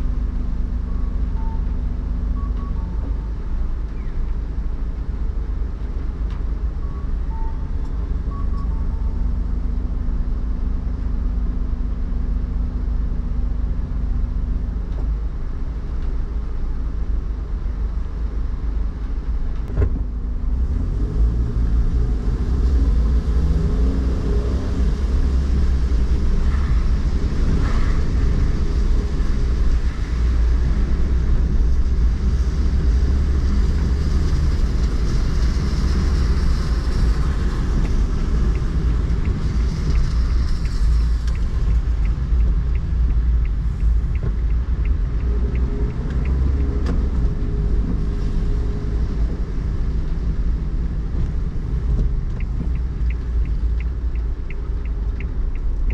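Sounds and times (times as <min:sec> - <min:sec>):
engine and road drone: 0:00.0 - 0:55.9
tyre hiss on wet road: 0:24.5 - 0:42.1
light ticks: 0:34.6 - 0:55.9.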